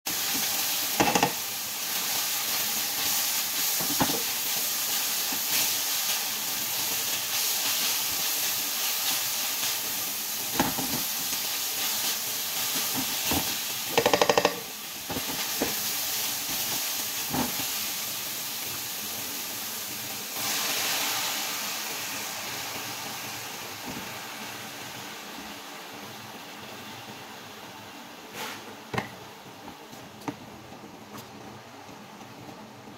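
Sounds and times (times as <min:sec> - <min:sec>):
food sizzling in oil: 0:00.1 - 0:27.6
spatula knocking and scraping pan: 0:01.0 - 0:01.4, 0:12.9 - 0:15.8.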